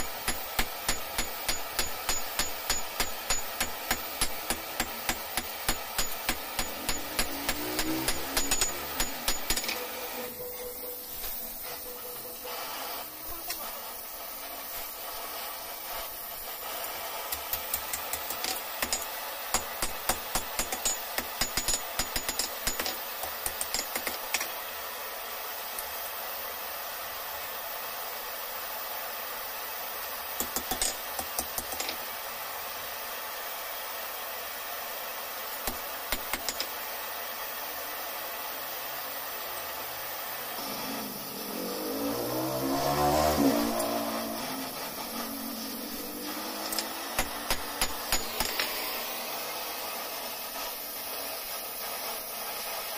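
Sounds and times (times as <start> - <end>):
gas torch flame hissing: 0.0 - 52.9
hammer on steel rod: 0.2 - 9.9.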